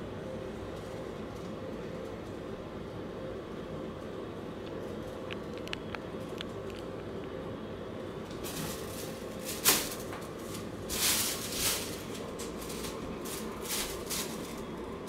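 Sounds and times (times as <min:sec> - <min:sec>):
air purifier fan hum: 0:00.0 - 0:15.0
plastic bag crinkling: 0:08.5 - 0:14.9.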